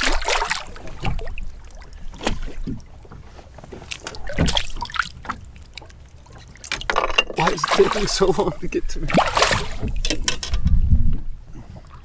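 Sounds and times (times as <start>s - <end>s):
choppy water against hull: 0.0s - 12.0s
fish splashing at surface: 7.4s - 8.3s, 9.1s - 10.0s.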